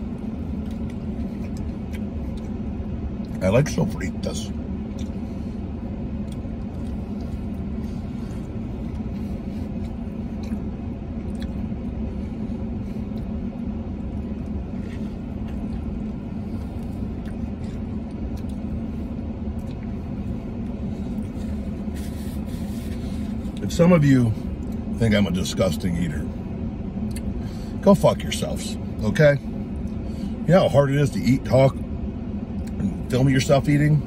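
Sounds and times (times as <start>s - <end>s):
person chewing food: 0.0s - 3.4s, 4.8s - 23.6s, 27.0s - 27.4s
parked vehicle humming: 0.0s - 34.0s.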